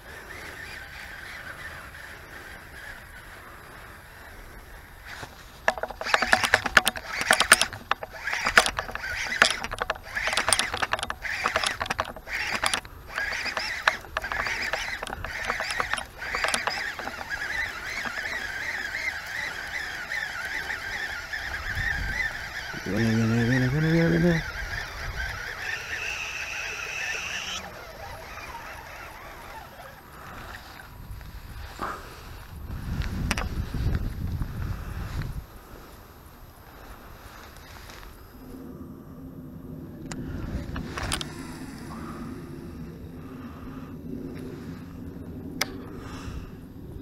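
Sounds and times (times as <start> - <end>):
fishing reel whirring: 0.0 - 35.1, 39.9 - 47.0
geese honking: 5.2 - 30.8.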